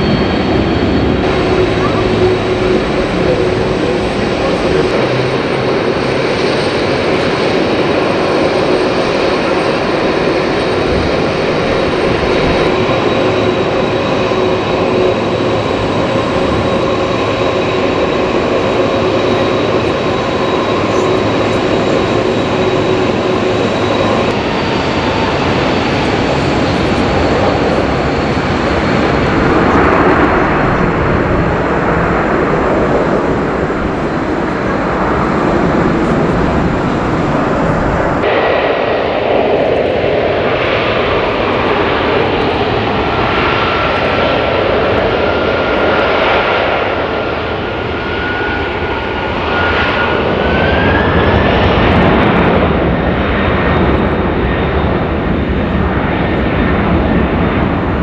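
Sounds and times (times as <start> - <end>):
jet engines rumbling and whining: 0.0 - 58.0.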